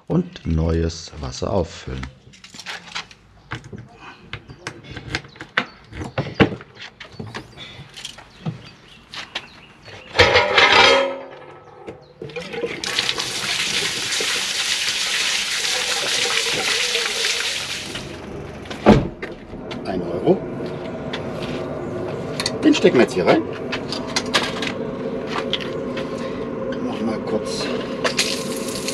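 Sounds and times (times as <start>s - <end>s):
waste water draining: 12.2s - 18.3s, 28.1s - 28.9s.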